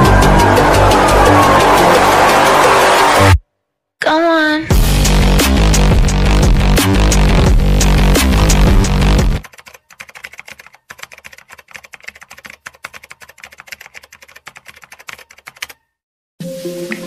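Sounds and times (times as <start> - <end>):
electronic dance music: 0.0 - 3.4, 4.7 - 9.4
keyboard typing clicks: 9.4 - 15.9.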